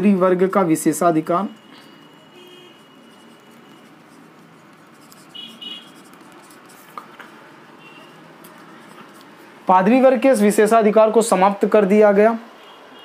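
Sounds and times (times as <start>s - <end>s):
marker pen squeak: 1.5s - 7.0s
marker pen scratching on paper: 1.9s - 9.5s.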